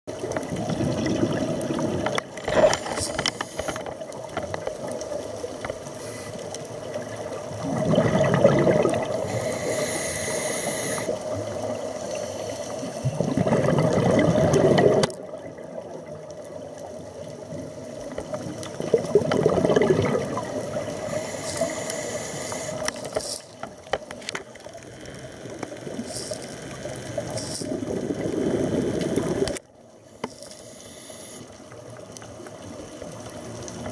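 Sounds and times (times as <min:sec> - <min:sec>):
faint steady hum: 0:00.3 - 0:33.9
exhaust bubbles rumbling: 0:00.5 - 0:02.1, 0:07.4 - 0:09.3, 0:13.1 - 0:16.0, 0:18.7 - 0:20.9
regulator hiss on inhale: 0:02.4 - 0:03.9, 0:05.8 - 0:06.9, 0:09.1 - 0:13.2, 0:20.7 - 0:23.6, 0:24.8 - 0:27.8, 0:28.5 - 0:31.8.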